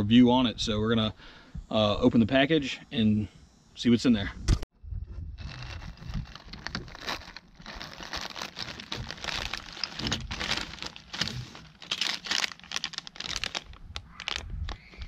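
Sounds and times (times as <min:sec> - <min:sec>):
plastic bag crinkling: 0:05.4 - 0:14.9
bagged corks handled: 0:05.4 - 0:15.0.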